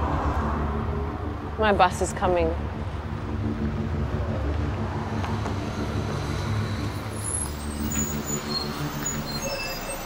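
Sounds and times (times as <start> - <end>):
high-pitched squeaks: 7.1 - 10.0.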